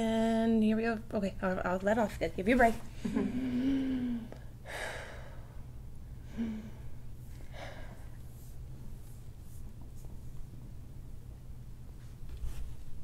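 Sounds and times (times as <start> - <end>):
low background hum: 0.0 - 13.0
person sighing: 3.0 - 5.3, 6.3 - 6.8.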